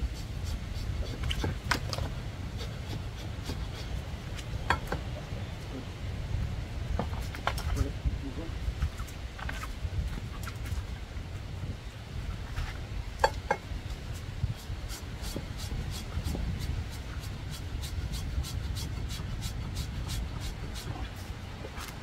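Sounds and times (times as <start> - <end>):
hand rasp filing toenail: 14.1 - 21.3.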